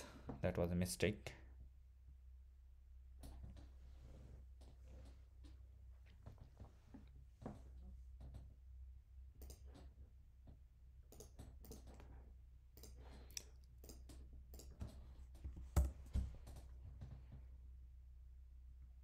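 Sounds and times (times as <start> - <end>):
low steady hum: 0.0 - 19.0
computer keys clicking: 9.4 - 9.9, 11.1 - 12.0.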